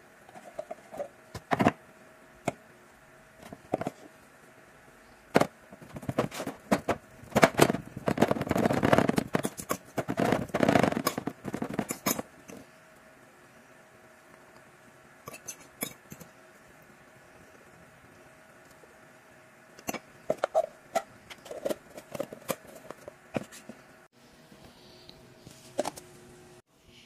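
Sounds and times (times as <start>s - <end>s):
fork scraping a ceramic plate: 15.3s - 16.3s.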